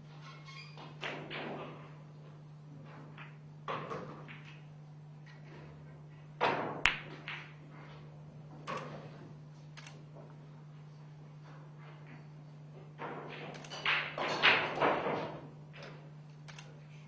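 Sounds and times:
pool balls clicking: 2.8 - 5.5, 6.5 - 7.7, 12.9 - 16.0.

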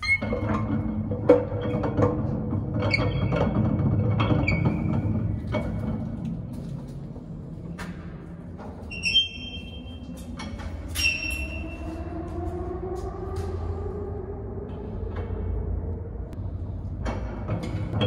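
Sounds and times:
metro train rumbling: 3.9 - 18.0
high-pitched squeals: 8.9 - 15.5.

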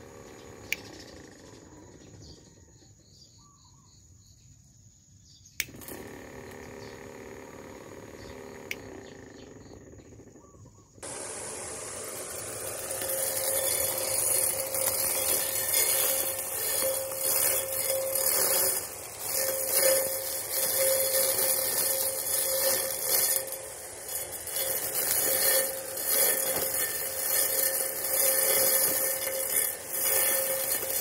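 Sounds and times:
electric grass cutter whirring: 0.0 - 2.6, 5.6 - 31.0
electric motor hum: 0.0 - 2.6, 5.6 - 31.0.

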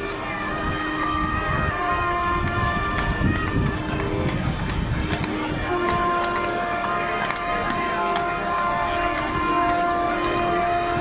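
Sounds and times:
crowd hubbub: 0.0 - 11.0
ships' sirens blasting: 0.0 - 11.0
scattered clicks and knocks: 2.3 - 10.8.

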